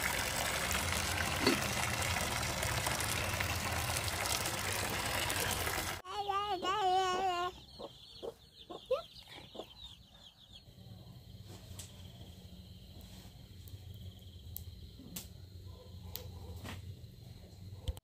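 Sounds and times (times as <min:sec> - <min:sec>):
chickens clucking: 0:06.4 - 0:10.3.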